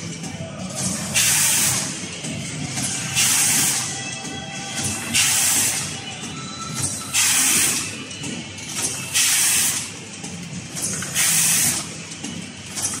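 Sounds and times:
machine rattling: 0.0s - 13.0s
compressed air hissing: 11.1s - 11.9s.

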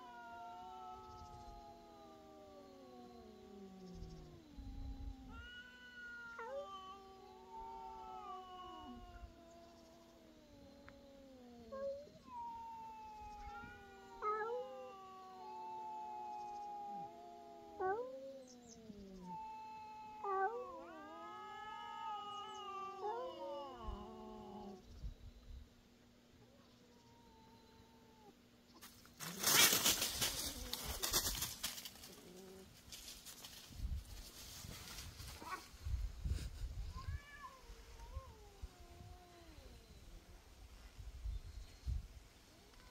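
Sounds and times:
angry cat yowling: 0.0s - 24.8s
dry leaves rustling and crackling: 28.8s - 35.9s.

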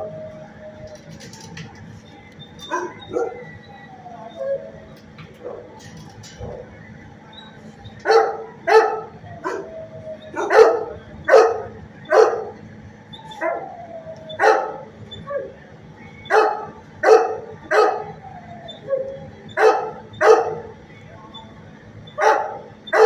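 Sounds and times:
dog whining: 2.4s - 5.8s, 7.3s - 20.7s
dog barking: 2.6s - 3.4s, 8.0s - 9.7s, 10.3s - 12.6s, 14.4s - 15.6s, 16.3s - 18.1s, 19.6s - 20.7s, 22.2s - 23.0s.

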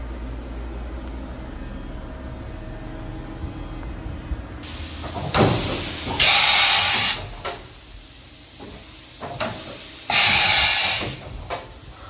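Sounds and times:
hissing air blasts: 4.6s - 12.0s
mechanical clunks of changer arm: 9.3s - 11.8s.

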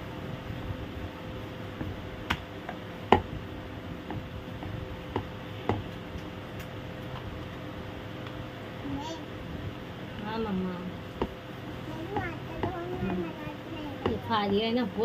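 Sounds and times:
faint steady hum: 0.0s - 15.0s
rolling pin rolling dough: 12.1s - 13.3s, 13.9s - 15.0s.

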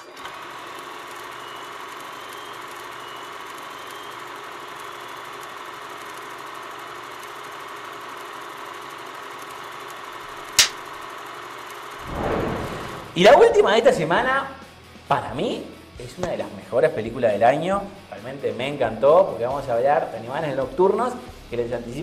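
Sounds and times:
film projector whirring: 0.0s - 12.0s
clapperboard snap: 10.6s - 10.8s.

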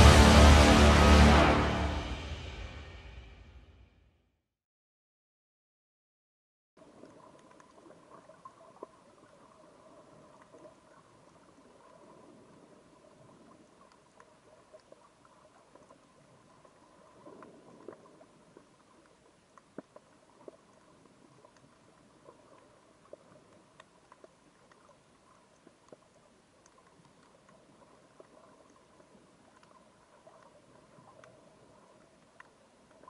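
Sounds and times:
small clicks and crackles: 6.8s - 33.0s.

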